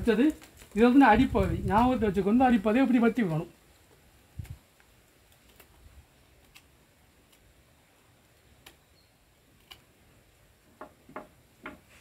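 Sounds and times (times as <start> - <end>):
knife cutting stem clicks: 9.6 - 9.9.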